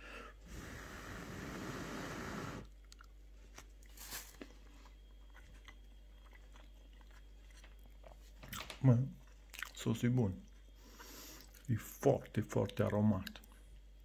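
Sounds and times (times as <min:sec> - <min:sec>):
person chewing: 0:02.7 - 0:11.7.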